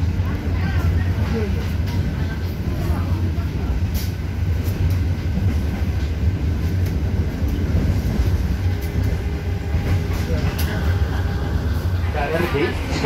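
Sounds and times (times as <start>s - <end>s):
railcar rumble: 0.0s - 13.0s.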